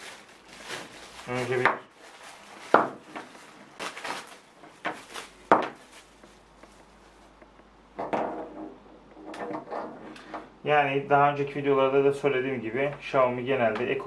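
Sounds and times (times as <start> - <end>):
plastic wrapping rustling: 0.0 - 7.4.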